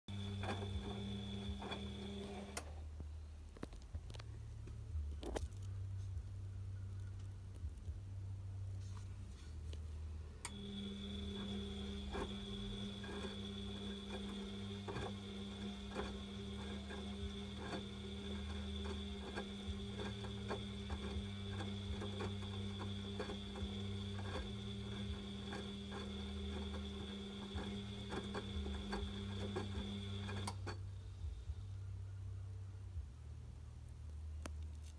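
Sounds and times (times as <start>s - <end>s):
washing machine motor hum: 0.0s - 2.9s, 10.4s - 30.9s.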